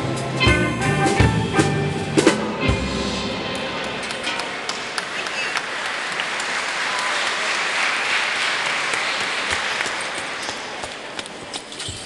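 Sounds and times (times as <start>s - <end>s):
audience applauding: 4.0s - 11.4s.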